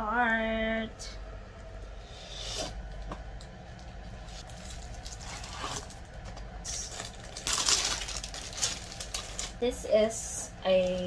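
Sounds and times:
plastic wrap crinkling: 0:04.2 - 0:09.8, 0:10.6 - 0:11.0.

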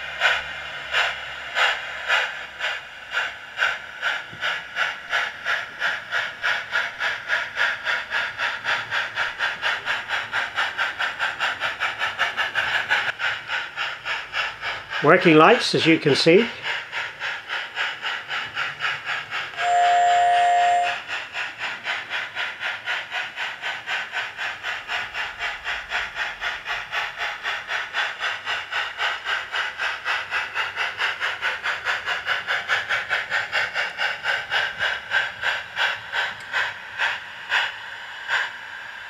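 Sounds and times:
model steam locomotive chuffing: 0:00.0 - 0:39.0
multi-tone steam whistle: 0:19.5 - 0:21.1.

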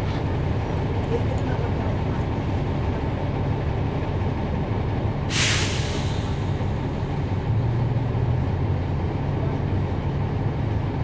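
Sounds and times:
bus diesel engine running: 0:00.0 - 0:11.0
air brake hiss: 0:05.3 - 0:06.6.

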